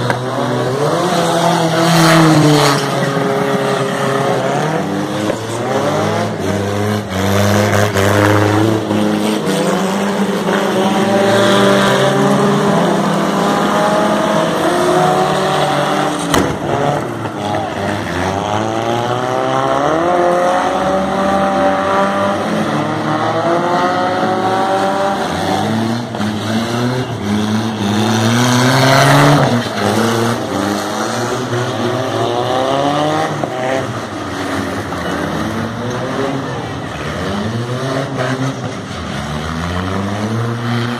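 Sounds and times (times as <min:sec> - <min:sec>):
car engines revving: 0:00.0 - 0:40.9
rush of tyre noise: 0:00.0 - 0:40.9.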